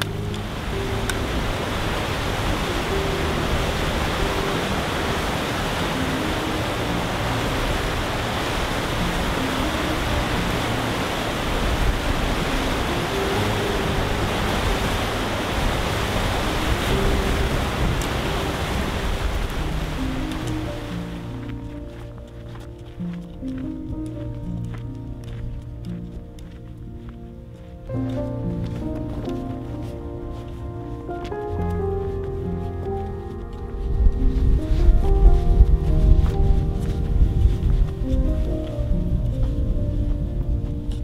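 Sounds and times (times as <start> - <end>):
faint background music: 0.0 - 41.0
fast water rushing: 0.0 - 41.0.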